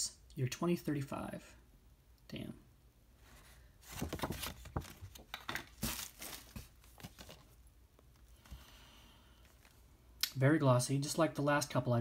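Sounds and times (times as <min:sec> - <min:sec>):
plastic case and cardboard handled: 0:03.3 - 0:08.6.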